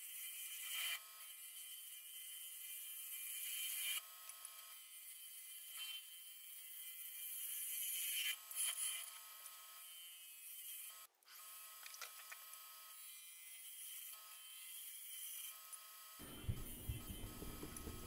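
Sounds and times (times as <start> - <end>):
faint lathe machine whine: 12.6 - 18.0.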